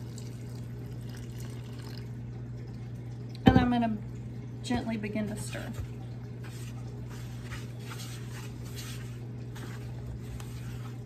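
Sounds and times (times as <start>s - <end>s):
wooden spoon scraping dough in bowl: 6.4s - 11.0s.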